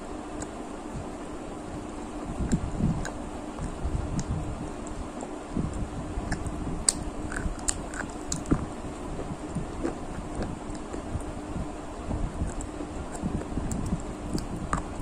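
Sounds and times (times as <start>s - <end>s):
faint steady hum: 0.0s - 15.0s
mouth clicks: 2.4s - 8.7s
chewing crispy fried food: 6.4s - 8.7s.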